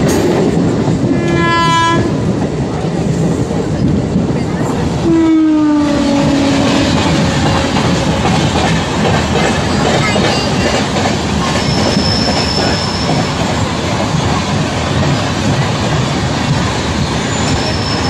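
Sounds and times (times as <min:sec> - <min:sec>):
train wheels clattering on rails: 0:00.0 - 0:18.0
train horn blast: 0:01.1 - 0:02.2, 0:05.0 - 0:08.2
high wheel squeal: 0:11.6 - 0:13.3, 0:17.2 - 0:18.0.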